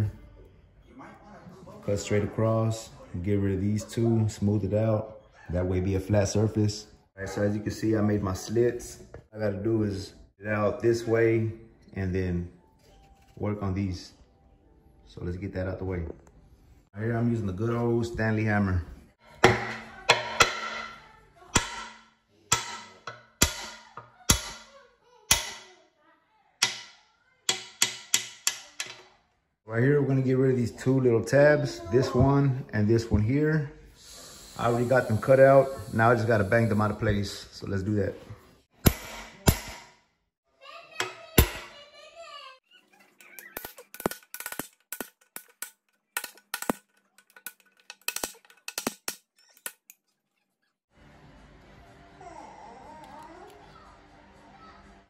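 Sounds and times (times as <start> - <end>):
hammer striking metal: 19.4 - 21.0, 21.6 - 24.7, 25.3 - 25.7, 26.6 - 29.0, 38.8 - 40.0, 41.0 - 41.8.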